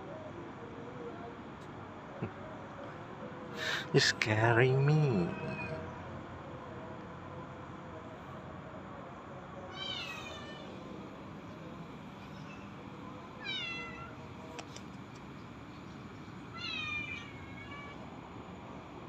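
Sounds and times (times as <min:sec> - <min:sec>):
cat meowing: 0:05.1 - 0:05.9, 0:09.7 - 0:10.7, 0:13.4 - 0:14.2, 0:16.5 - 0:18.0.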